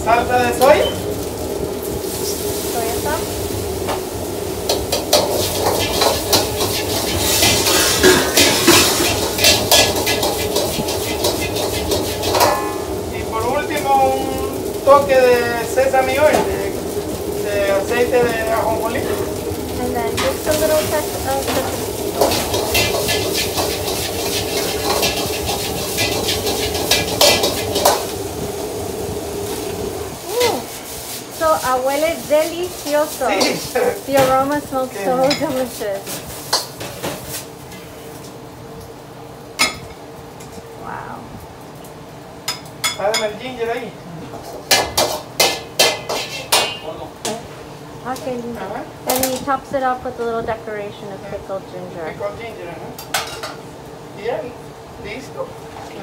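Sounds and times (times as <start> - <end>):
low kitchen hum: 0.0 - 56.0
rice sizzling in a wok: 0.0 - 56.0
metal ladle clanking on wok: 4.7 - 12.8.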